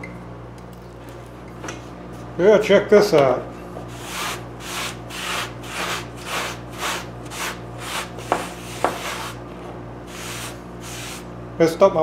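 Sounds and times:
steady low hum: 0.0 - 12.0
rag scrubbing wooden workbench: 3.9 - 9.4, 10.1 - 11.3.

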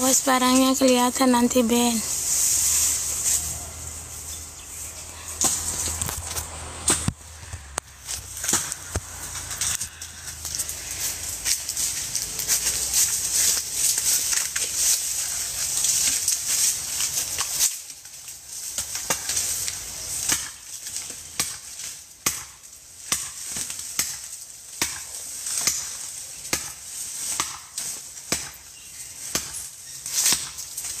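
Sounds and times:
dry leaves and brush rustling: 0.0 - 31.0
blade chopping wood: 5.4 - 9.9, 20.2 - 20.6, 21.3 - 28.6, 29.3 - 30.7.

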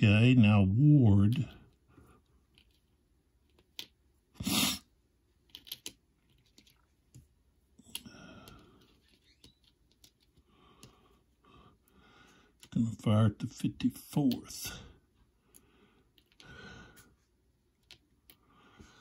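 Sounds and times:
cardboard counters clicking: 5.4 - 7.2.

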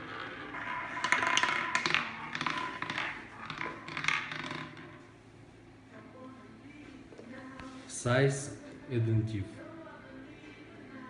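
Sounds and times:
roulette ball clattering: 0.0 - 5.2.

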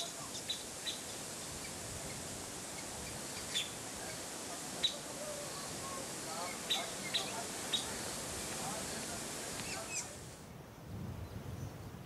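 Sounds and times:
steady high hiss: 0.0 - 12.0
bird chirps: 4.8 - 8.1.

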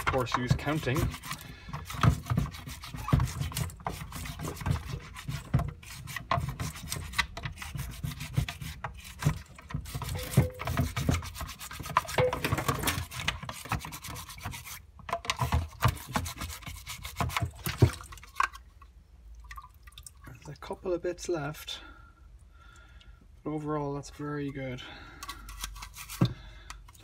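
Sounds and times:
brush knocking against plastic: 0.0 - 18.2
brush scrubbing inside plastic: 0.0 - 18.6, 25.4 - 27.0.

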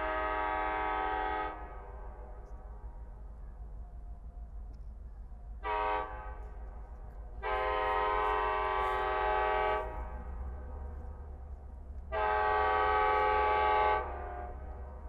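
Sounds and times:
train air horn blasts: 0.0 - 2.3, 5.6 - 11.2, 12.0 - 15.0
low steady rumble: 0.0 - 15.0.

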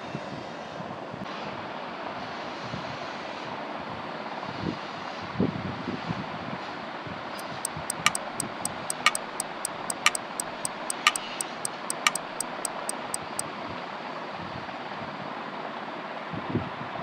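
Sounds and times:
clock ticking: 7.4 - 13.4.

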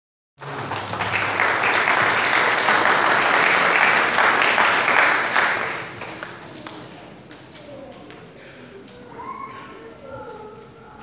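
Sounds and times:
audience applauding: 0.4 - 6.8.

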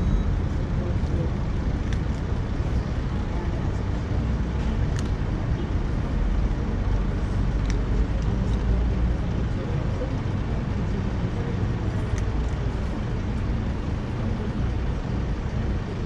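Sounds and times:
low rumble of road traffic: 0.0 - 16.0.

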